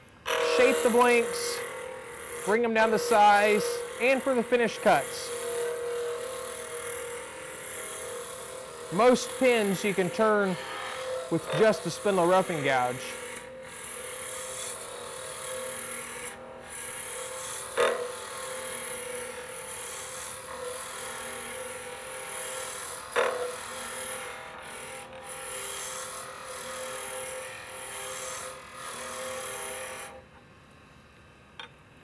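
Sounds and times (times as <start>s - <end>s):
lathe humming: 0.1s - 30.2s
gouge scraping wood: 0.3s - 19.1s.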